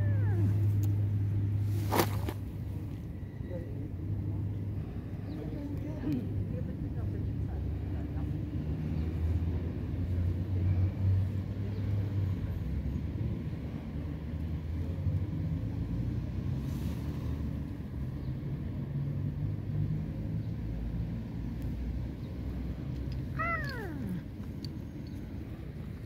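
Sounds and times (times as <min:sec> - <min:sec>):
cat meowing: 0:23.3 - 0:24.3.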